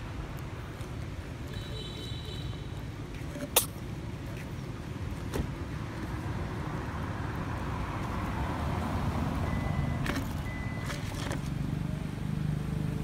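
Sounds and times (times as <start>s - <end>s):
road vehicle approaching: 2.6s - 13.0s.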